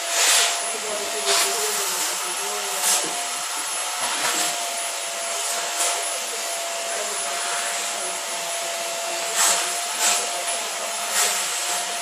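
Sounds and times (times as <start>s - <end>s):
rushes of air through nozzle: 0.0s - 2.1s, 9.0s - 11.9s
vacuum cleaner running: 0.0s - 12.0s.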